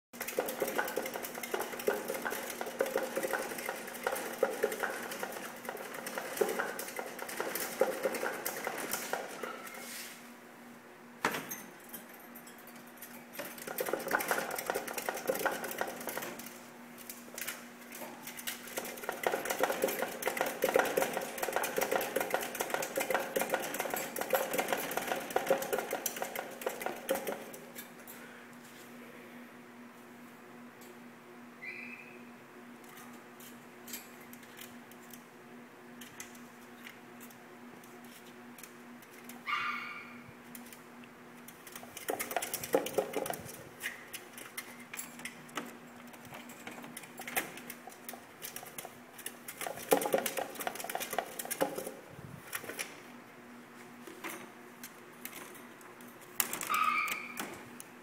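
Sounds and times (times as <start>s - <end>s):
plastic exercise wheel rattling: 13.4s - 16.5s, 41.7s - 43.6s, 49.5s - 52.0s.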